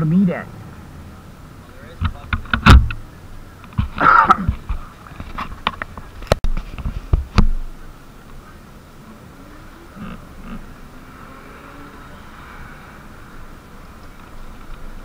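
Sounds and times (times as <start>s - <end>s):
sharp knocks and clatter: 2.0s - 3.0s.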